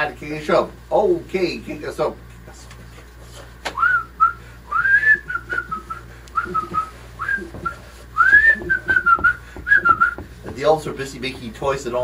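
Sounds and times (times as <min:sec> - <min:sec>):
person whistling a tune: 0:03.8 - 0:10.2.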